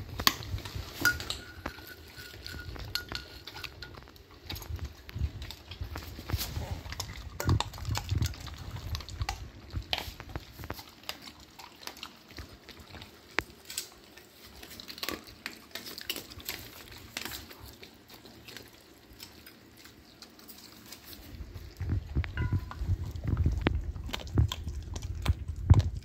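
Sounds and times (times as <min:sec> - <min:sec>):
dogs chewing and licking: 0:00.0 - 0:26.0
sharp clicks on metal bowls: 0:00.2 - 0:04.7, 0:07.0 - 0:08.4, 0:22.3 - 0:22.9.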